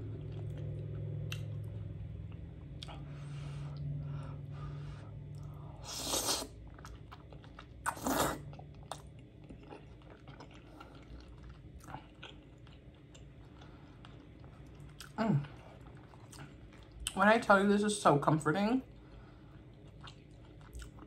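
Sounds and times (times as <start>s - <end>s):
steady low hum: 0.0s - 21.0s
wet chewing with mouth clicks: 5.3s - 17.2s, 18.9s - 21.0s
slurping: 5.8s - 7.0s, 7.8s - 8.6s.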